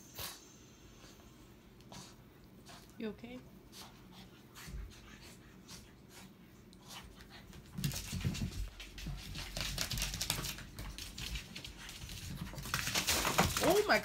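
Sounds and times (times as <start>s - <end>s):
puppy scrabbling on rug: 6.8s - 14.0s.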